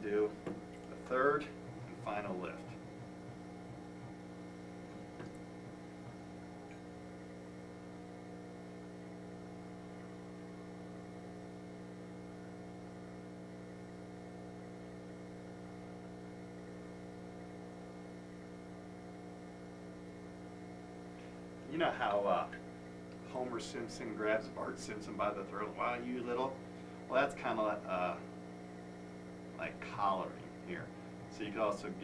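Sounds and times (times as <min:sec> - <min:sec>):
steady electrical hum: 0:00.0 - 0:32.0.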